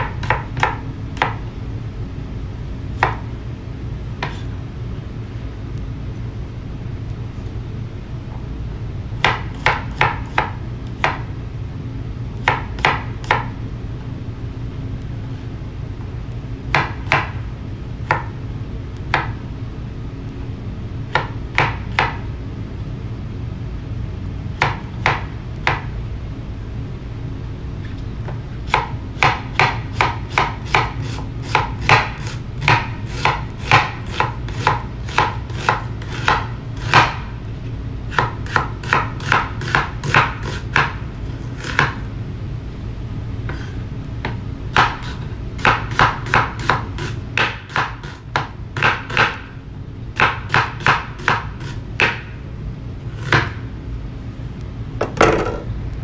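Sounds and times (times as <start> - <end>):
knife chopping on wooden board: 0.0 - 1.4, 4.2 - 4.5, 9.2 - 11.2, 12.4 - 13.5, 24.6 - 25.8, 28.3 - 37.2, 38.1 - 41.0, 41.6 - 42.0, 43.5 - 49.4, 50.2 - 52.3, 53.2 - 53.6.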